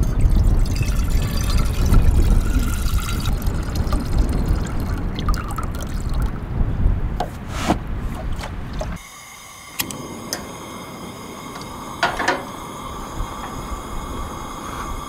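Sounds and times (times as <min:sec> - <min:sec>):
water filling a saucepan: 0:00.0 - 0:06.4.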